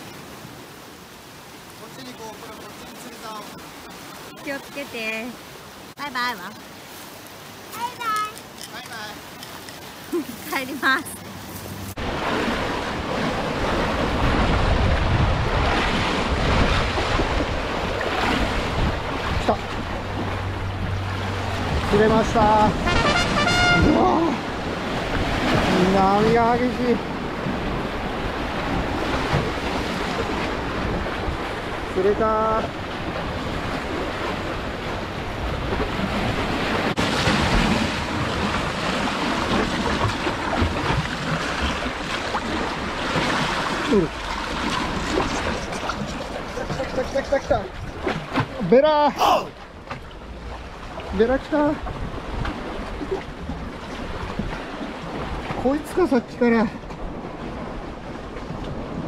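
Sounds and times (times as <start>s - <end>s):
wind on microphone: 11.2s - 32.0s
wind buffeting microphone: 11.2s - 48.6s, 49.7s - 55.7s
sea waves breaking on concrete blocks: 11.9s - 20.4s, 21.3s - 49.6s.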